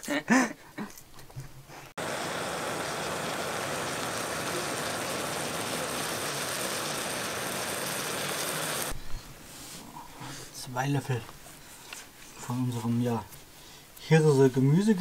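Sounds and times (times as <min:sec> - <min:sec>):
vegetables sizzling in a pan: 0:02.0 - 0:09.0.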